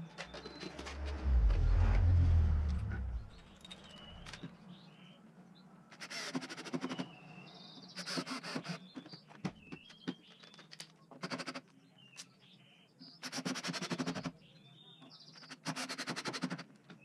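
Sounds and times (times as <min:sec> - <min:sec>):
birds chirping: 0:00.0 - 0:05.3.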